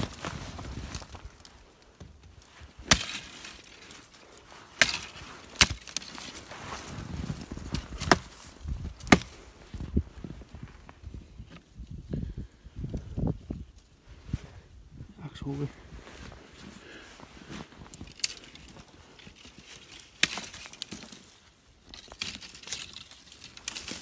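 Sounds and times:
footsteps crunching in snow: 0.0 - 1.7, 2.4 - 11.0, 15.6 - 21.5
sticks snapping: 2.8 - 6.4, 9.0 - 9.4, 17.9 - 18.7, 19.7 - 21.2, 21.9 - 24.0.

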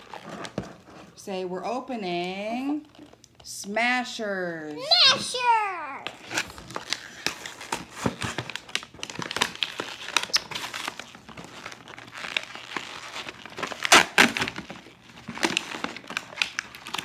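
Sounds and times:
plastic packaging tearing: 6.1 - 17.0.

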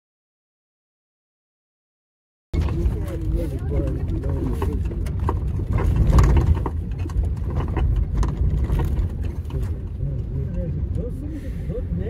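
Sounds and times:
knocks and rattles: 2.6 - 11.0
engine and road noise rumble: 2.6 - 12.0.

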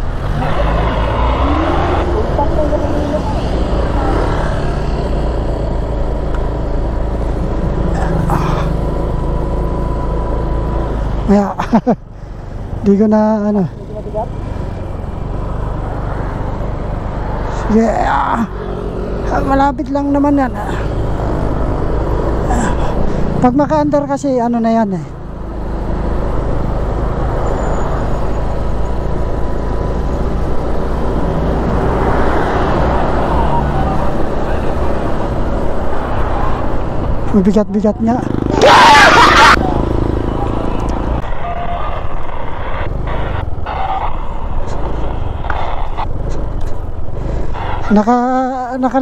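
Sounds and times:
low rushing noise: 39.1 - 47.9.

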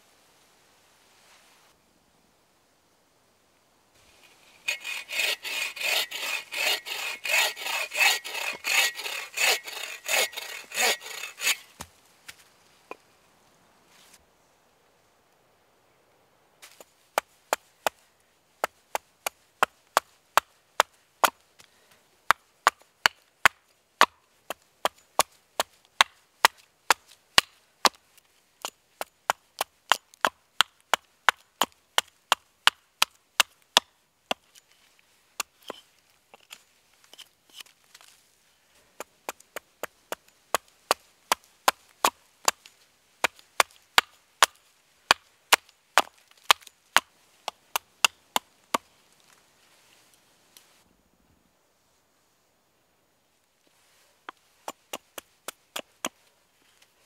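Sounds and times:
axe chopping wood: 4.7 - 11.9, 22.3 - 28.0, 28.6 - 34.5, 43.2 - 47.1.

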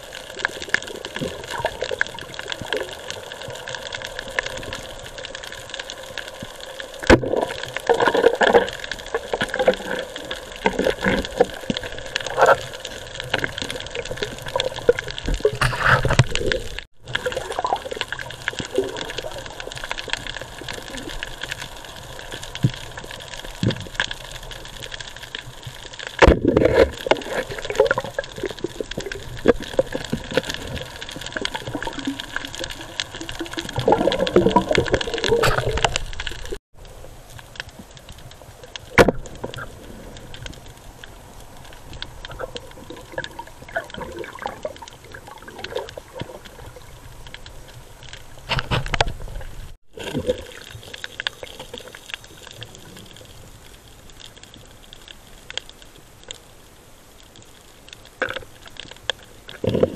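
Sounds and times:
underwater water noise: 0.0 - 59.9
gurgling bubble bursts: 7.0 - 21.4, 26.2 - 36.6, 42.2 - 47.0, 49.9 - 53.1.

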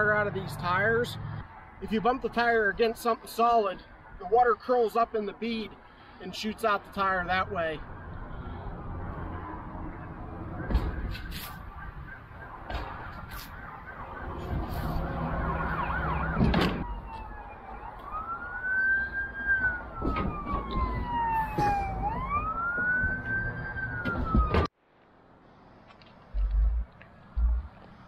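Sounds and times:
emergency siren wailing: 7.4 - 24.7
tires thumping on ground: 24.0 - 24.8.

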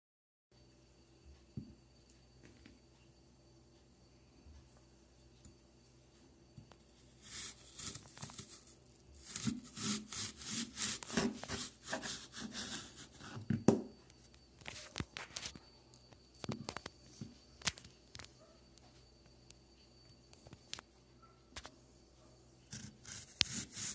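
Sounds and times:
handsaw rasping through apple: 7.2 - 13.4, 22.7 - 23.9.

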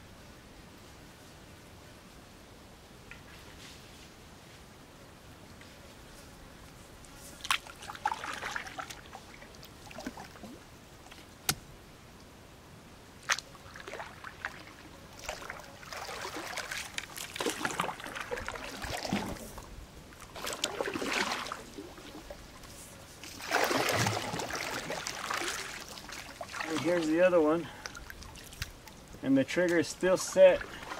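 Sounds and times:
paddle swishing through water: 7.4 - 11.3, 13.3 - 30.9.

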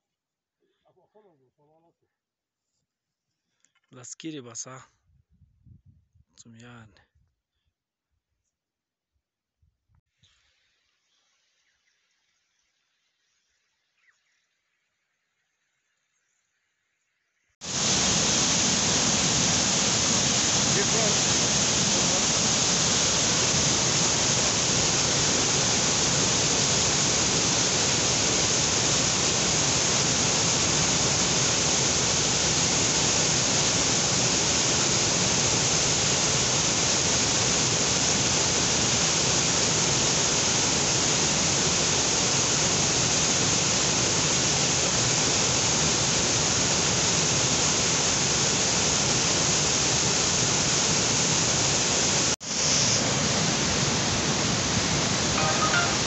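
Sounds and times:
water rushing over boulders: 17.6 - 56.0.

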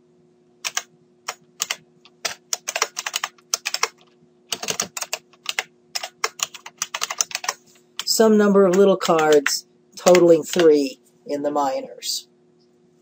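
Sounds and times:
faint steady hum: 0.0 - 13.0
typing on a keyboard: 0.6 - 8.1, 8.7 - 10.8.

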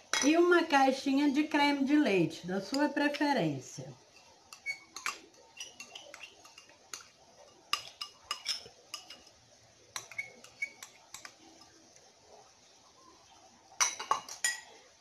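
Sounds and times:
metal spoon clinking on saucepan: 0.0 - 0.4, 2.6 - 3.0, 4.1 - 11.8, 13.8 - 14.8.

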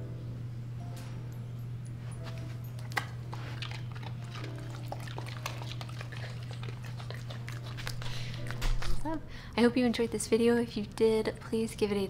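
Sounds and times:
steady low hum: 0.0 - 12.0
dogs chewing treats: 2.3 - 9.2.

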